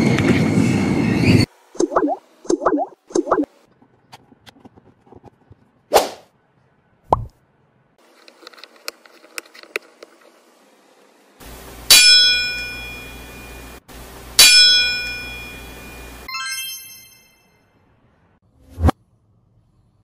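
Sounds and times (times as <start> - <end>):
bright chime sound effects: 14.5 - 17.7.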